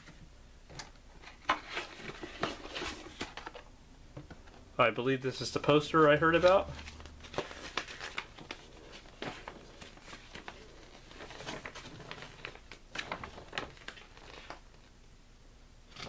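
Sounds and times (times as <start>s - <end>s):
paper rustling and crinkling: 1.2s - 3.7s, 5.3s - 14.9s.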